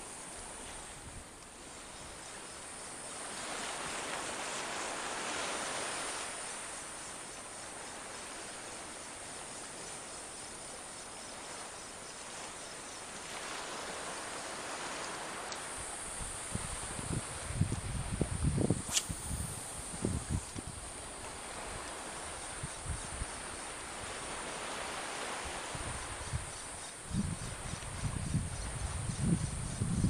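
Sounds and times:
wind: 0.0s - 30.0s
water lapping on shore: 11.0s - 18.2s, 18.9s - 26.2s.

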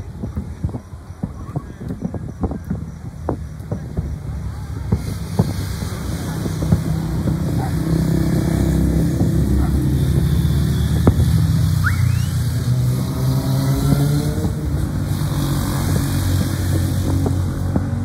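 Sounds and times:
fireworks bangs and crackles: 0.0s - 18.0s
low engine rumble: 0.0s - 18.0s
firework rising whistle: 8.6s - 13.1s.

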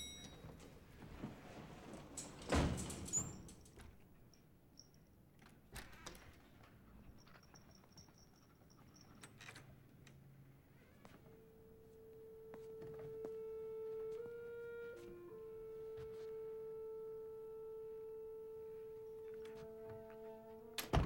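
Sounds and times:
elevator door sliding shut: 0.0s - 3.7s.

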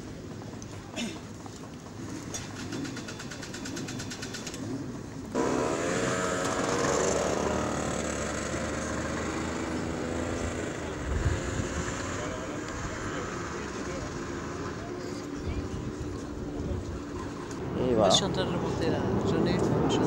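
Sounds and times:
motorcycle engine note rising: 5.4s - 15.0s.

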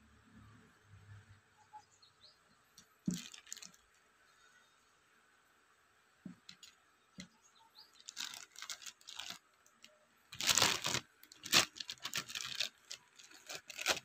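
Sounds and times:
plastic bags crinkling: 3.0s - 3.9s, 7.9s - 14.0s.

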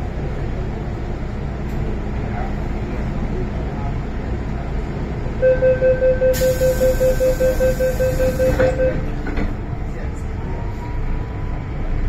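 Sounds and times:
train rumble: 0.0s - 12.0s
rapid warning beeps: 5.4s - 9.1s
train doors knocking shut: 7.9s - 9.6s.

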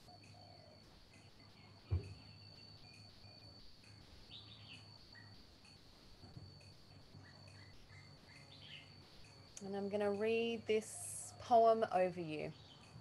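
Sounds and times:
insect drone: 0.0s - 13.0s
low thump: 1.9s - 2.3s
bird chirps: 4.1s - 5.8s, 7.2s - 9.4s.

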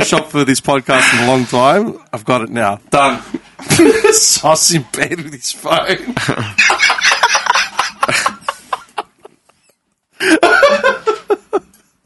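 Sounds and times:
men laughing hard: 3.6s - 4.3s, 6.0s - 11.8s.

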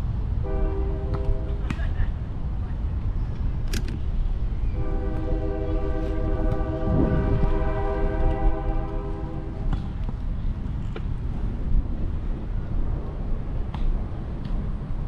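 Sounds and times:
train horn blast: 0.4s - 1.7s, 4.7s - 9.8s.

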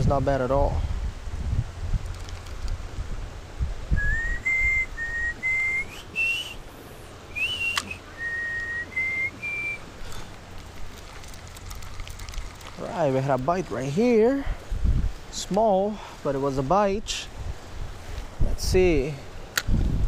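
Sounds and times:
person whistling a tune: 4.0s - 6.6s, 7.3s - 9.8s
sharp click: 7.7s - 8.0s.

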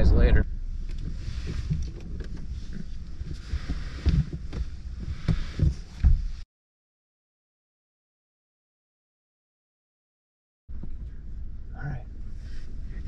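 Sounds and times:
low rumble: 0.0s - 6.4s, 10.7s - 13.0s
clothing and gear rustling: 0.8s - 6.4s
dull thumps: 0.9s - 6.4s.

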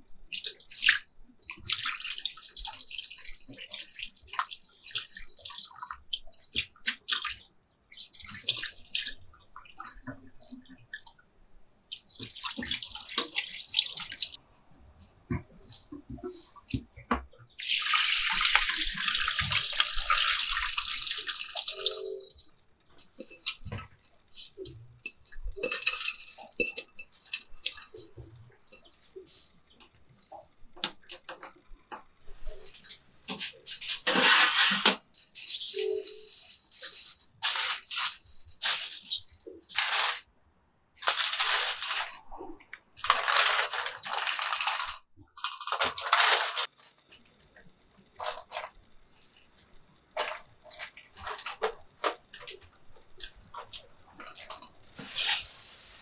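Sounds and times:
water pouring into a colander: 0.4s - 7.2s, 12.0s - 14.4s, 17.6s - 22.5s
almonds rattling onto a foil tray: 35.5s - 40.2s, 41.0s - 42.2s, 43.0s - 46.7s.

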